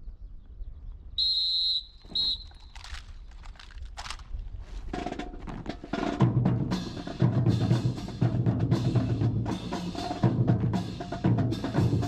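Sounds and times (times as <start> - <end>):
music with heavy drum beat: 5.0 - 12.0.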